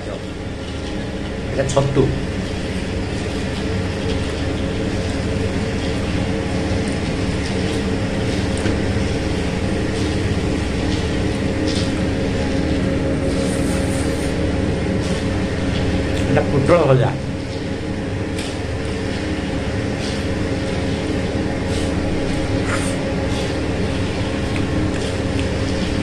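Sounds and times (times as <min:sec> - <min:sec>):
mechanical hum with low rumble: 0:00.0 - 0:26.0.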